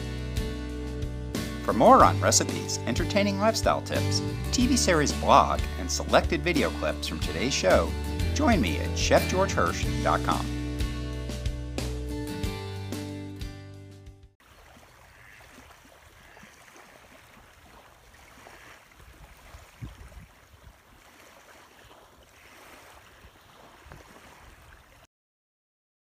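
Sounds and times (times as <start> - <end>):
small waves lapping: 14.4 - 25.1.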